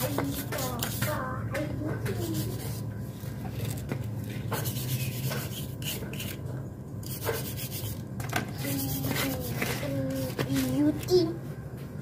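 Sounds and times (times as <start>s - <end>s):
steady low hum: 0.0s - 12.0s
hand scrubbing engine parts: 4.5s - 6.4s, 7.0s - 8.0s.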